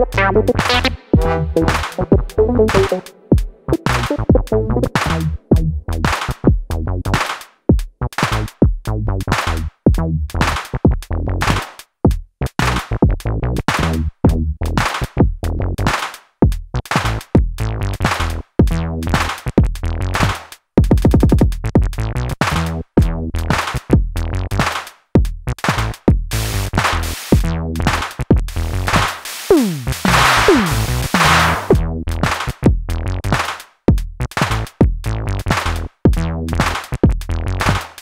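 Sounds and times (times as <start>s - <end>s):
synth groove: 0.0s - 5.8s, 29.5s - 31.9s
drum machine hip hop beat: 0.0s - 8.9s, 9.9s - 12.3s, 16.4s - 32.9s, 33.9s - 38.0s.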